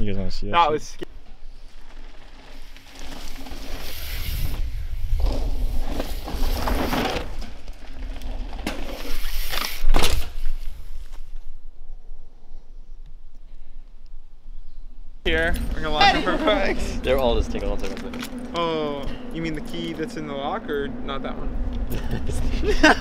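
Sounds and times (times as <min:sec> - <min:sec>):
bike tyres crunching on dirt: 0:01.1 - 0:11.6, 0:15.3 - 0:20.8
low rumble: 0:15.2 - 0:23.0.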